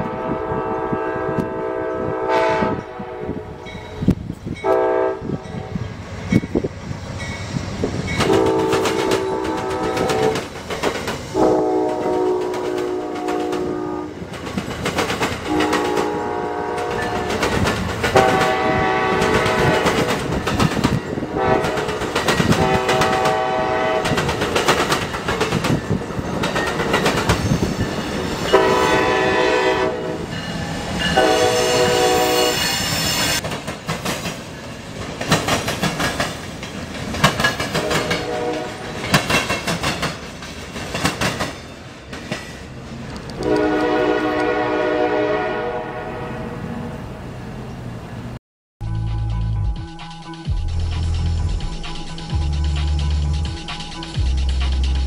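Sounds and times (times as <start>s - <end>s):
locomotive horn blasts: 0.0s - 3.7s, 4.6s - 5.8s, 8.2s - 10.4s, 11.3s - 14.2s, 15.5s - 17.5s, 18.1s - 20.1s, 21.2s - 24.3s, 28.5s - 30.4s, 31.1s - 32.8s, 37.8s - 39.0s, 43.4s - 46.7s
train wheels clacking on rails: 6.2s - 44.5s.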